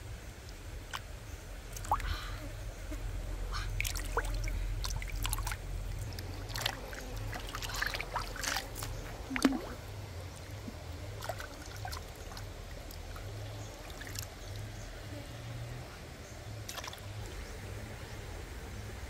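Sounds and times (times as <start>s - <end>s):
stream flowing: 0.0s - 19.0s
water splashing and dripping: 1.7s - 2.1s, 3.6s - 14.7s, 16.6s - 17.3s.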